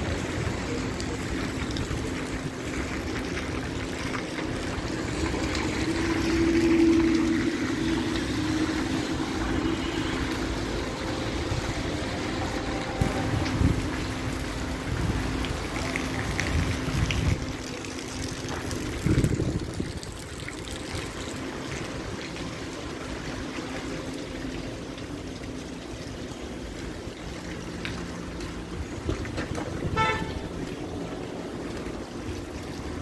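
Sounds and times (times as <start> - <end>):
rain pattering on a wet street: 0.0 - 33.0
car horn toot: 9.6 - 10.3, 29.9 - 30.5.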